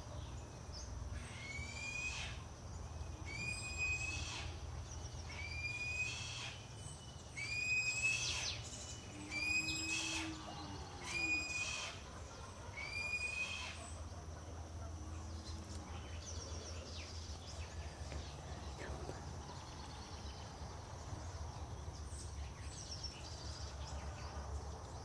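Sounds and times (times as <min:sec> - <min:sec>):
bird shrill screaming calls: 0:01.2 - 0:02.4, 0:03.2 - 0:04.6, 0:05.2 - 0:12.1, 0:12.7 - 0:14.0.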